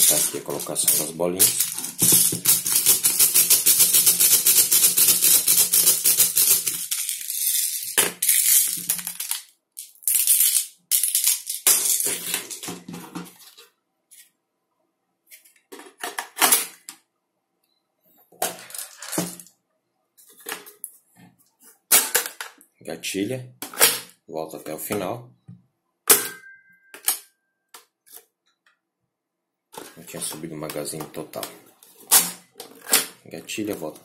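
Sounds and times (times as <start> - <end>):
plastic pellets rattling and clicking: 0.0 - 12.6.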